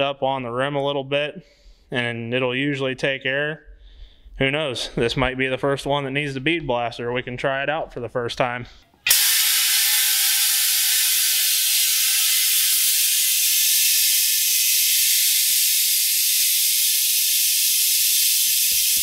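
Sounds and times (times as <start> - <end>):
compressed air hissing: 9.1 - 19.0.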